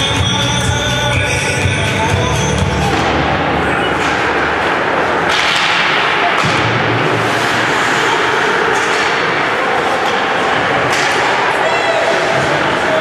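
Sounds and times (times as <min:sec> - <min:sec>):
arena noise: 0:00.0 - 0:13.0
sticks and puck clacking: 0:02.8 - 0:13.0.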